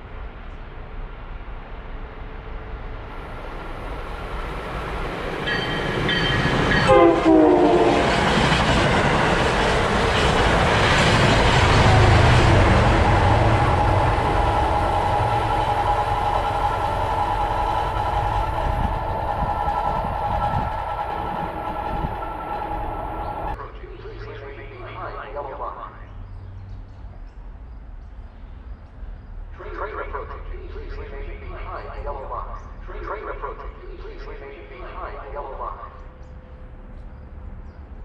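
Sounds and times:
train rumbling on rails: 0.0 - 38.0
high ringing tone: 5.4 - 7.6, 13.9 - 23.6
train horn: 5.5 - 8.4, 11.7 - 23.6.

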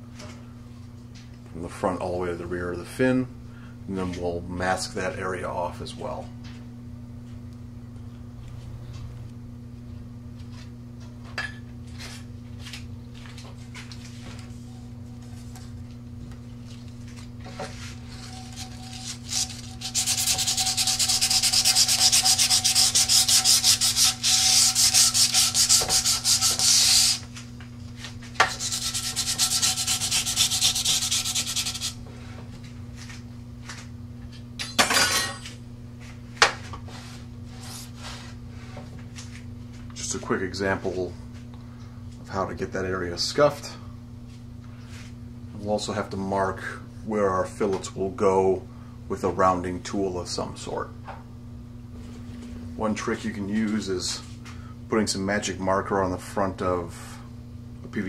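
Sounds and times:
hand sanding with sandpaper: 17.8 - 27.3, 28.4 - 32.0.

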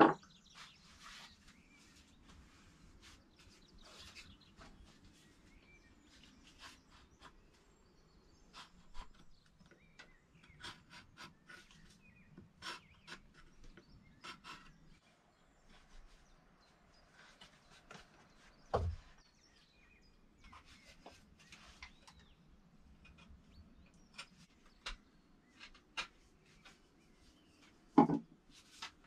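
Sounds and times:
knife scraping wood: 10.4 - 14.9.

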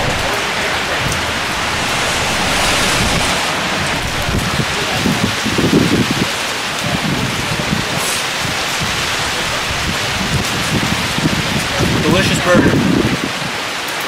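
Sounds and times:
low rustles: 0.0 - 5.2.

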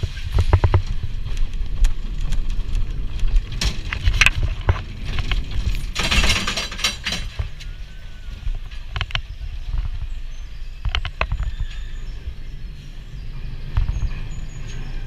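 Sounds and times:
wheel and lift clanks: 0.0 - 9.3
roller coaster car rumbling: 0.0 - 15.0.

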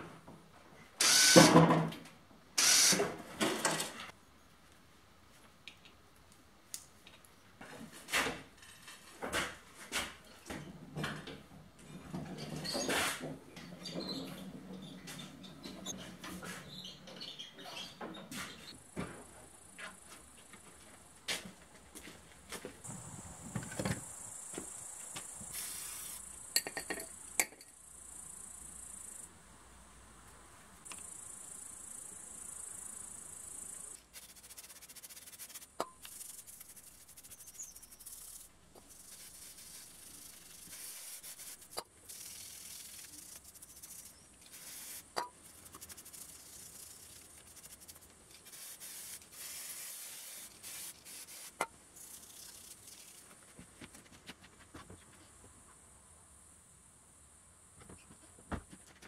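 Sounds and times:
high hiss: 22.8 - 29.3, 30.4 - 53.4.

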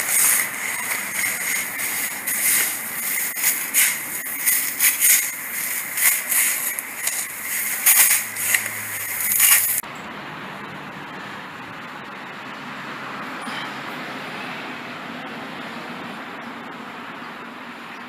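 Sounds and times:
shovel digging into soil: 0.0 - 9.8.

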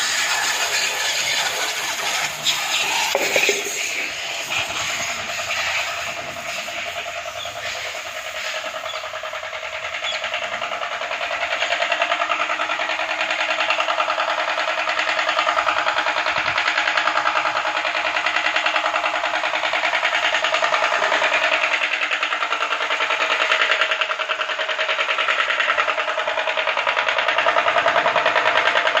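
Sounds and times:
electric motor drone: 0.0 - 10.2
pressure washer pump pulsing: 0.0 - 29.0.

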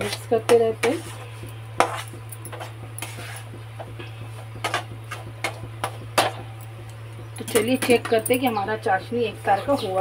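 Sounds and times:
spatula scraping flour in a pan: 0.0 - 5.6
low hum: 0.0 - 10.0.

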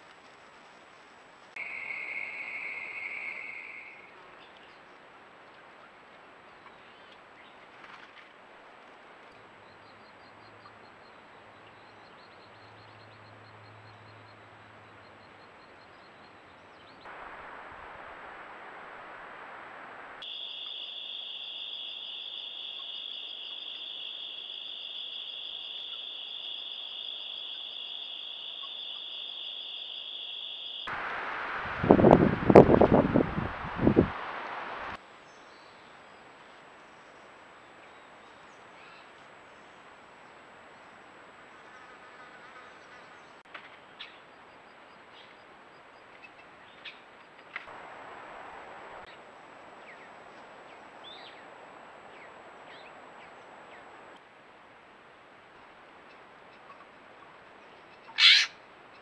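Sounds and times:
insects trilling: 0.0 - 4.1, 17.1 - 31.2, 58.2 - 58.6.

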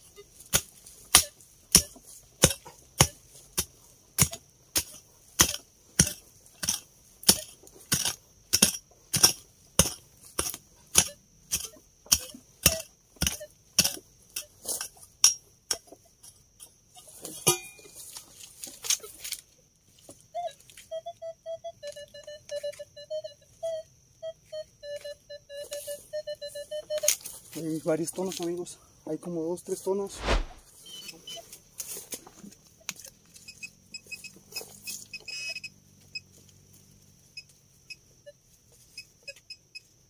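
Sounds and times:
digging tool striking hard ground: 0.5 - 11.7.

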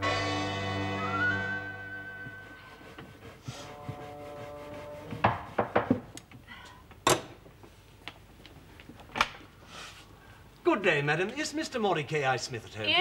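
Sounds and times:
sharp knocks on wood: 5.2 - 6.1.

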